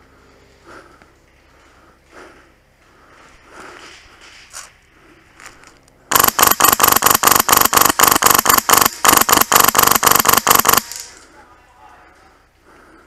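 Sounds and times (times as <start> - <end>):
airsoft gun firing rapidly: 6.1 - 11.0.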